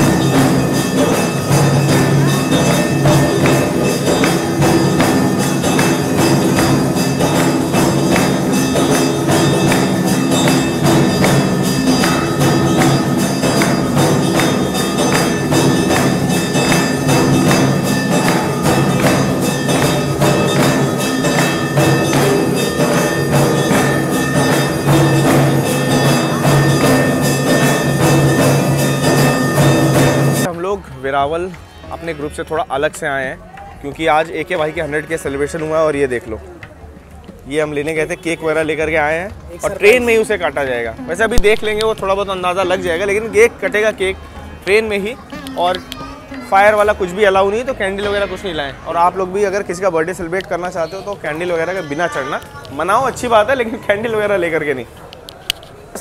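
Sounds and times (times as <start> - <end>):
jingling percussion: 0.0 - 30.6, 31.3 - 55.0
devotional temple music: 0.0 - 56.0.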